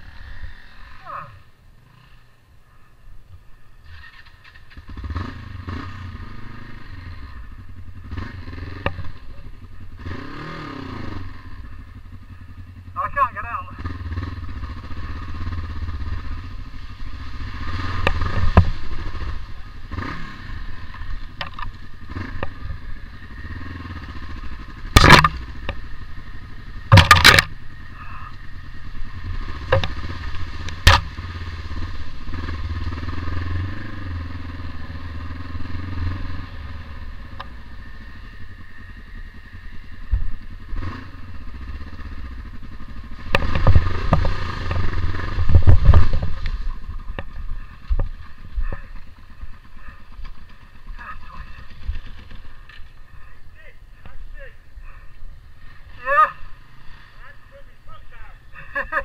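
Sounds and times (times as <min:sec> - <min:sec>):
motorcycle engine running: 0:00.0 - 0:59.0
motorcycle knocking over ruts: 0:07.5 - 0:12.0, 0:13.8 - 0:53.1.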